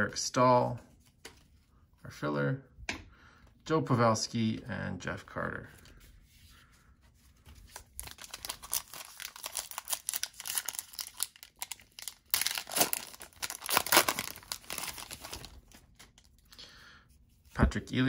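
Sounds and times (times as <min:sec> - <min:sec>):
foil wrapper tearing and crinkling: 0:07.7 - 0:16.3.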